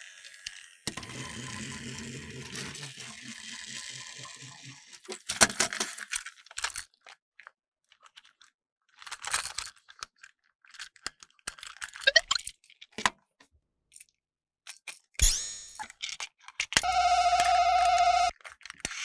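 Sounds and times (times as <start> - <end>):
plastic toy clicks and rattles: 4.9 - 13.2, 15.8 - 16.9, 18.3 - 19.0.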